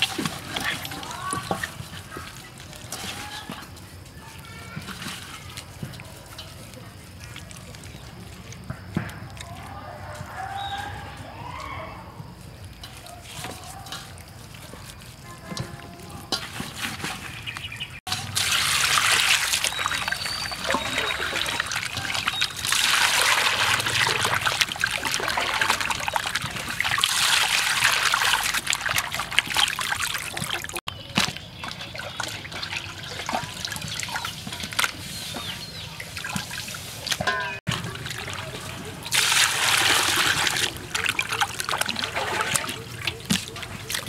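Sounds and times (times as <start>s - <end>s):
water sloshing in a metal basin: 0.0s - 44.0s.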